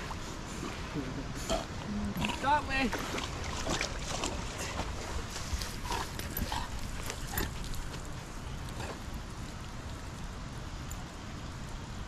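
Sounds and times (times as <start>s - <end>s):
water splashing: 1.5s - 10.0s.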